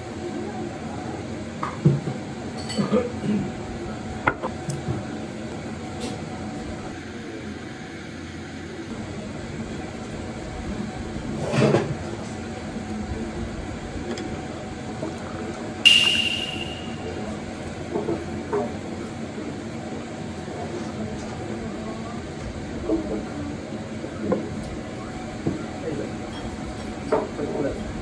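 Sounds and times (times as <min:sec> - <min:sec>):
room tone hum: 0:15.8 - 0:18.0.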